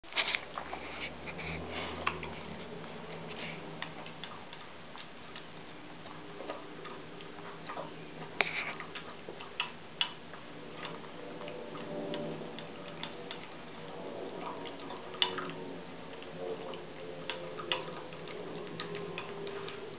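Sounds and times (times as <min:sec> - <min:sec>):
dog chewing from metal bowl: 0:00.0 - 0:19.9.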